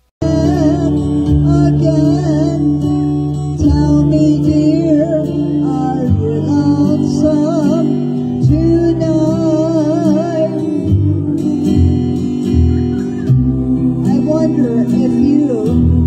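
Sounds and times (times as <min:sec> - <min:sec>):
guitar-led backing track: 0:00.0 - 0:16.0.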